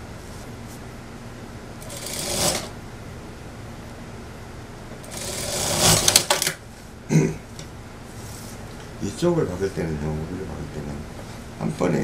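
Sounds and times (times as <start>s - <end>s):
sewing machine stitching: 1.8s - 2.7s, 5.0s - 6.5s.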